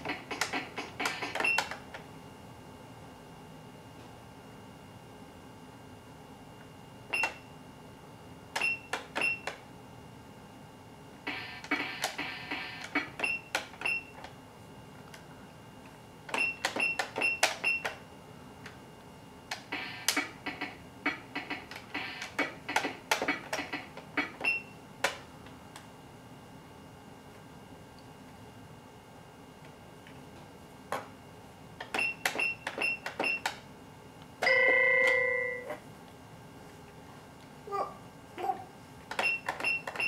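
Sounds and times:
toy keyboard notes: 0:34.4 - 0:35.8.

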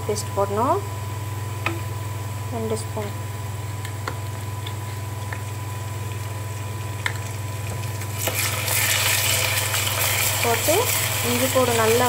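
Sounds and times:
steady low hum: 0:00.0 - 0:12.0
onions frying in oil: 0:03.9 - 0:12.0
loud sizzle in hot oil: 0:05.2 - 0:12.0.

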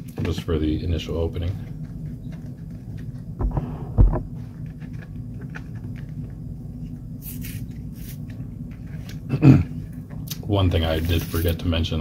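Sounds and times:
steady low hum: 0:00.0 - 0:12.0
blister pack thump: 0:03.4 - 0:04.3.

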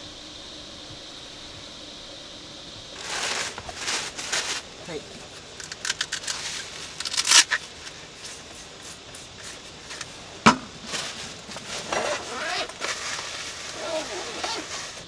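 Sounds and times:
paper towels rustling and scraping: 0:03.0 - 0:05.1, 0:10.8 - 0:15.0
sharp knock: 0:10.4 - 0:10.7.

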